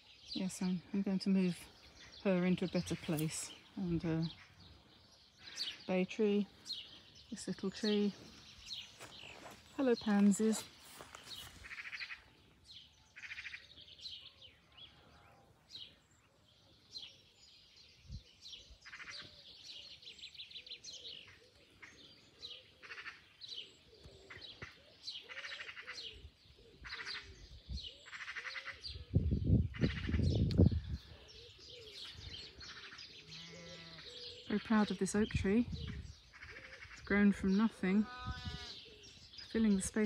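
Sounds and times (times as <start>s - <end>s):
small birds singing: 0.0s - 40.0s.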